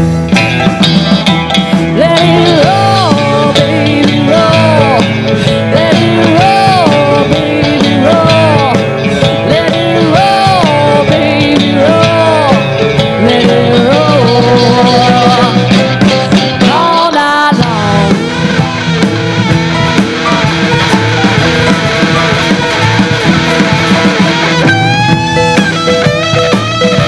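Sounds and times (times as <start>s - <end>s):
bass guitar: 0.0s - 27.0s
drums: 0.0s - 27.0s
electric guitar: 0.0s - 27.0s
keyboard: 0.0s - 27.0s
woman singing: 1.9s - 18.4s.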